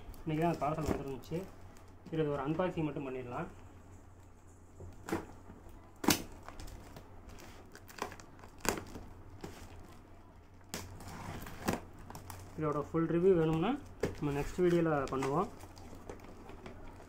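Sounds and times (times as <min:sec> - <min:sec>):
plastic wrapping crinkling and ripping: 0:05.8 - 0:17.0.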